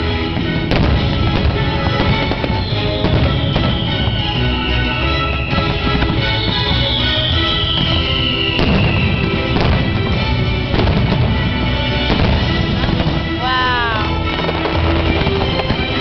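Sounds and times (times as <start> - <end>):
fireworks bursts banging: 0.0 - 16.0
fireworks show music: 0.0 - 16.0
falling whistle-like glide: 2.6 - 9.7.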